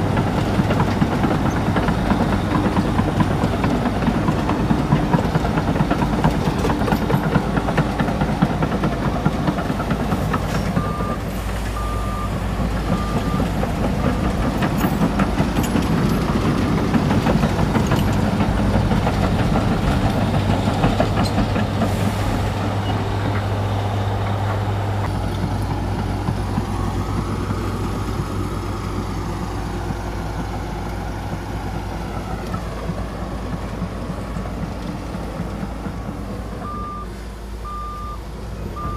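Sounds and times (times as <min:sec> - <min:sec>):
bulldozer diesel engine running: 0:00.0 - 0:38.9
reversing alarm beeps: 0:10.8 - 0:11.2, 0:11.8 - 0:14.4, 0:36.6 - 0:38.9.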